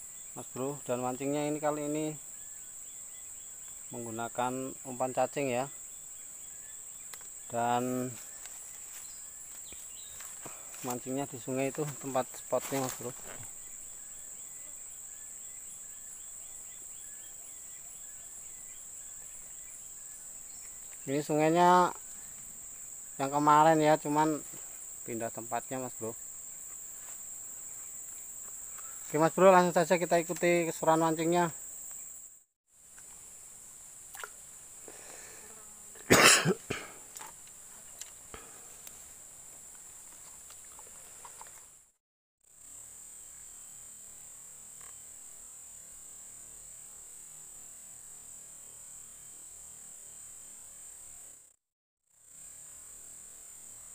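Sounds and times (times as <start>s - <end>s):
insects buzzing: 0.0s - 53.9s
person coughing: 36.0s - 37.0s.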